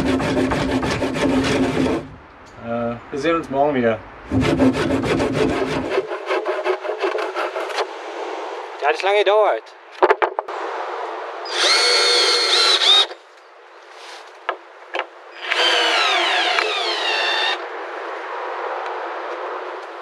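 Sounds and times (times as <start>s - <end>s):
power tool motor whining: 11.5s - 13.2s, 15.4s - 17.6s.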